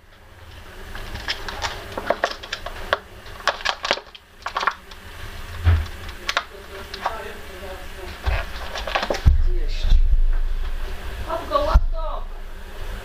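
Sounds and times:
faint low rumble: 0:09.3 - 0:13.0.

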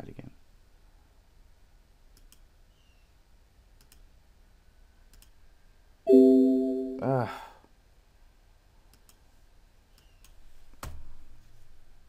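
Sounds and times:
faint mouse clicks: 0:02.1 - 0:02.5, 0:03.8 - 0:04.1, 0:05.1 - 0:05.4, 0:08.9 - 0:09.3, 0:09.9 - 0:11.0
electronic alert tone: 0:06.1 - 0:07.2.

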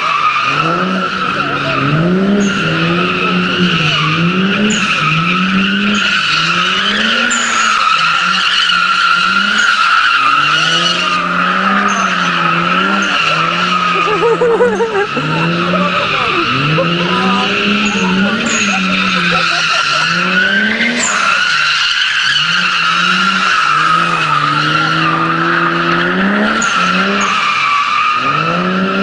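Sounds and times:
car engine revving: 0:00.0 - 0:29.0
tire squeal: 0:00.0 - 0:29.0.

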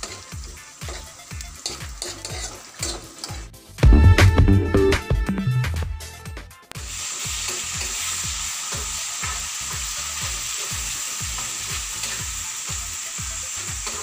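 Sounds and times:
sauce sizzling in a frying pan: 0:00.0 - 0:03.8, 0:06.8 - 0:14.0.

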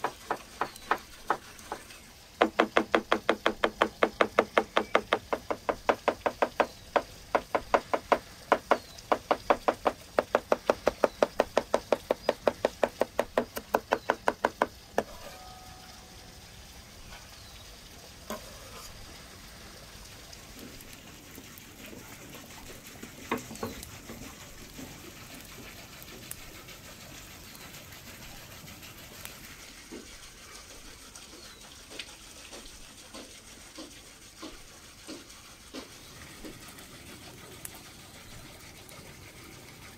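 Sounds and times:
cleaver chopping on wooden board: 0:02.4 - 0:15.1.

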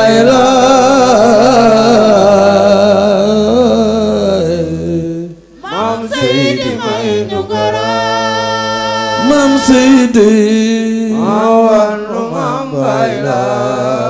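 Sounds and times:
man singing chant through microphone: 0:00.0 - 0:14.0.

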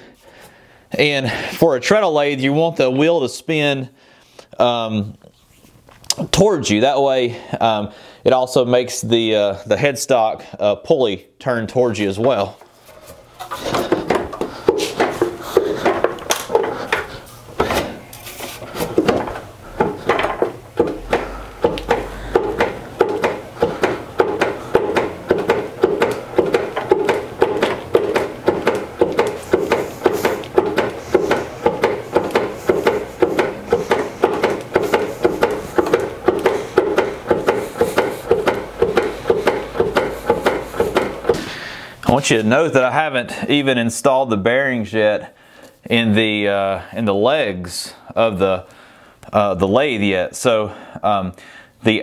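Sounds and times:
wooden treadle lathe knocking: 0:12.3 - 0:17.9, 0:18.8 - 0:41.5.

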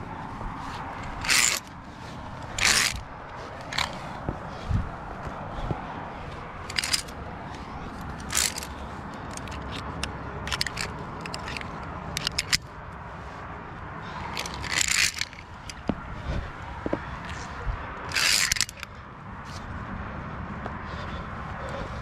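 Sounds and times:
steady low rumble: 0:00.0 - 0:22.0
carabiners scraping on steel cable: 0:00.9 - 0:01.8, 0:02.4 - 0:04.2, 0:06.6 - 0:12.7, 0:14.3 - 0:15.9, 0:17.2 - 0:18.9.

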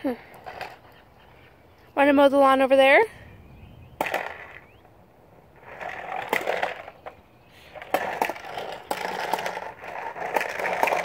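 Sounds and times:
plastic wheels rumbling on pavement: 0:00.0 - 0:01.0, 0:04.0 - 0:04.7, 0:05.5 - 0:11.0
balls clattering in plastic dome: 0:07.8 - 0:11.0.

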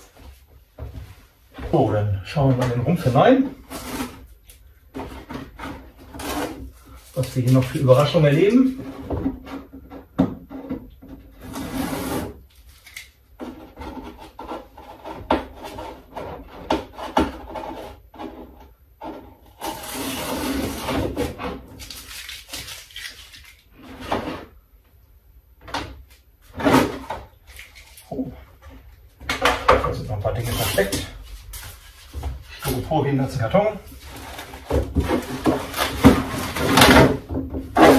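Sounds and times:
small knocks and bumps: 0:00.0 - 0:03.7, 0:08.5 - 0:11.5, 0:25.6 - 0:30.2, 0:33.9 - 0:37.9.

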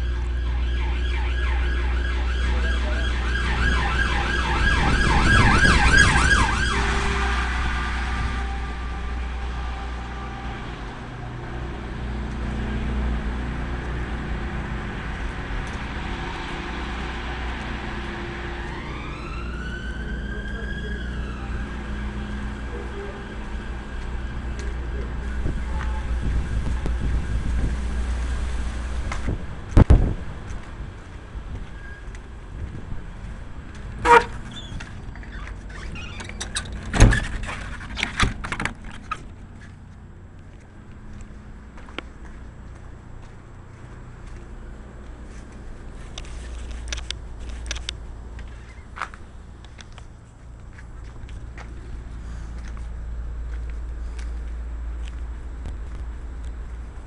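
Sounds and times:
siren wailing: 0:00.0 - 0:11.0, 0:15.6 - 0:28.0
traffic rumble: 0:00.0 - 0:57.0.

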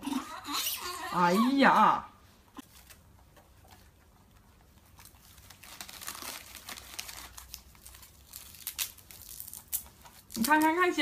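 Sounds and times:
plastic snack bag crinkling: 0:04.8 - 0:11.0.

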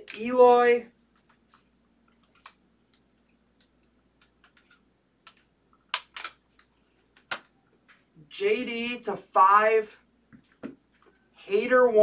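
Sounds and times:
plastic card cases clicking: 0:03.6 - 0:07.5.

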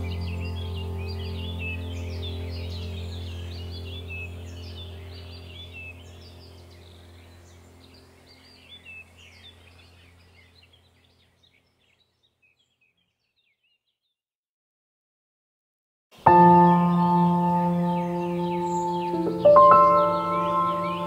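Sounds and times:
low steady hum: 0:00.0 - 0:11.4
small birds chirping: 0:00.0 - 0:14.2, 0:16.2 - 0:21.0.

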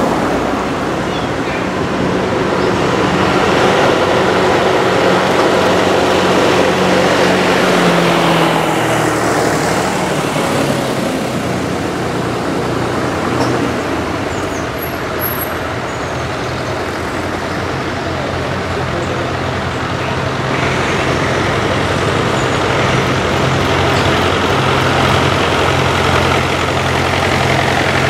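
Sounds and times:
tractor engines running: 0:00.0 - 0:28.0.

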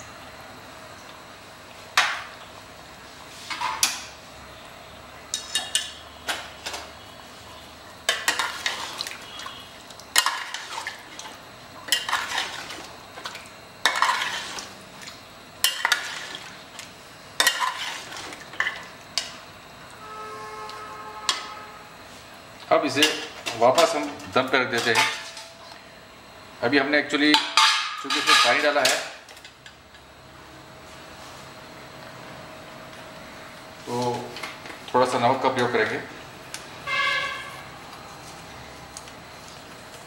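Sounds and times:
metal spatula scraping pot: 0:13.8 - 0:14.7, 0:17.4 - 0:18.2.

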